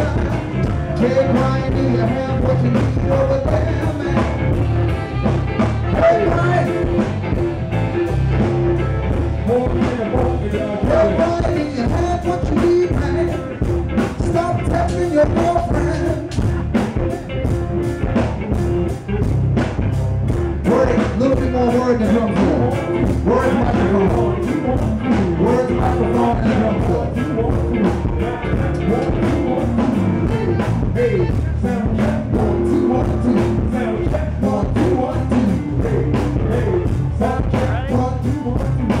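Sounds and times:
lead singer singing: 0:00.0 - 0:07.4, 0:08.2 - 0:17.3, 0:20.6 - 0:39.0
saxophone: 0:00.0 - 0:09.6, 0:22.8 - 0:34.4
live rock band playing: 0:00.0 - 0:39.0.

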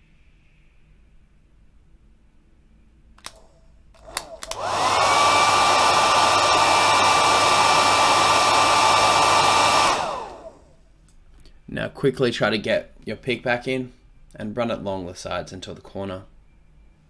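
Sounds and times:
heat gun blowing: 0:03.2 - 0:10.8.

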